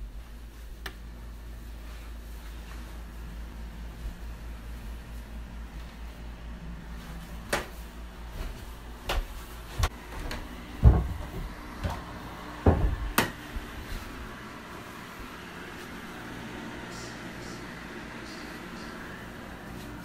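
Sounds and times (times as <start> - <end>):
footsteps going down stairs: 7.0 - 14.2.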